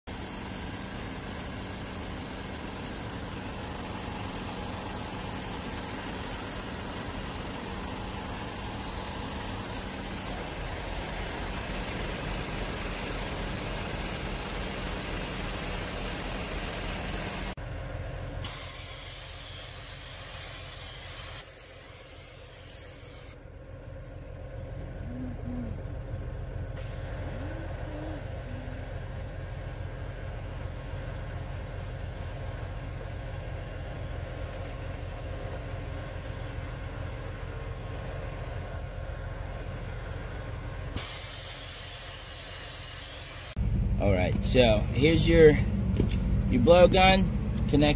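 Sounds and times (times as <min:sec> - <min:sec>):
vacuum rushing air hiss: 0:00.1 - 0:17.6, 0:41.0 - 0:43.6
low engine rumble: 0:00.1 - 0:18.4, 0:23.4 - 0:41.8, 0:43.5 - 0:47.9.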